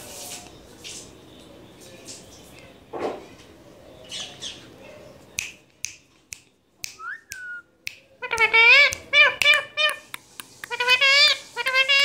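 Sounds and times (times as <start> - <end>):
parakeet clicks: 5.4 - 11.0
parakeet wavering call: 10.7 - 12.0.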